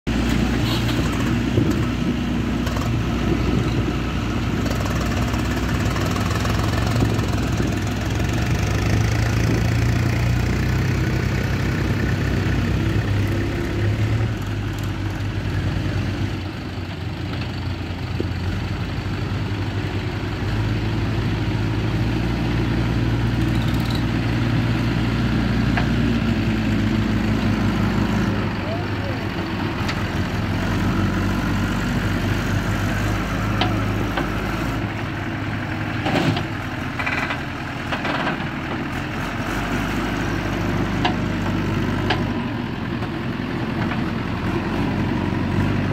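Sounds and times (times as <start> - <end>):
diesel engines drone: 0.1 - 45.9.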